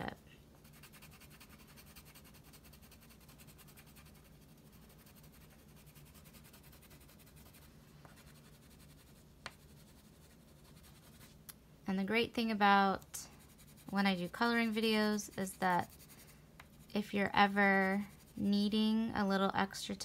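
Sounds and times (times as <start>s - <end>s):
crayon rubbing on paper: 0.6s - 11.4s, 13.2s - 18.5s.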